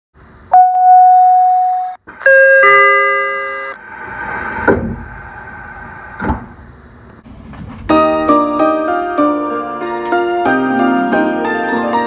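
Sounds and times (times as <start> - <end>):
steady background hum: 0.2 - 10.5
electronic door tone: 0.5 - 3.8
thud: 4.6 - 5.1.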